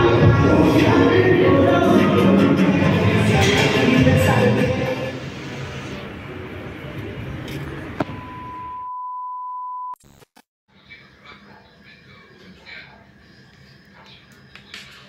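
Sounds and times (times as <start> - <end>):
background music: 0.0 - 7.6
high test-pattern beep: 8.0 - 10.0.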